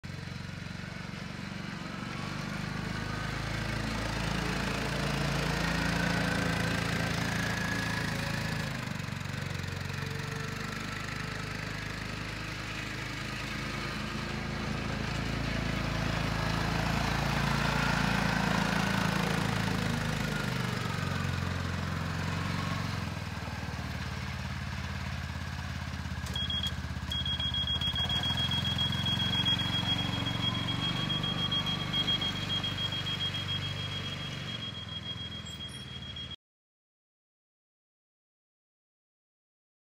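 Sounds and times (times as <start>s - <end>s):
quad bike engine running: 0.1s - 36.2s
high-pitched beep: 26.3s - 36.4s.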